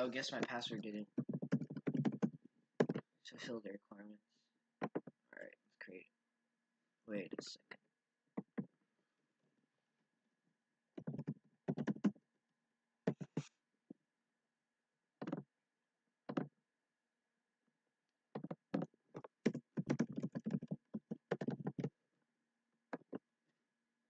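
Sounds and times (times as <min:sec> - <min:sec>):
typing on computer keyboard: 0:01.2 - 0:03.0, 0:11.0 - 0:12.2, 0:18.4 - 0:21.9.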